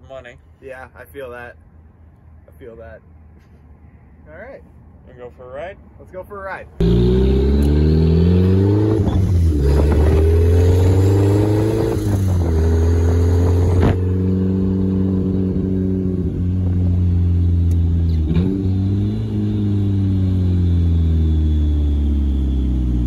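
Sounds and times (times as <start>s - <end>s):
car engine accelerating through gears: 6.8s - 23.0s.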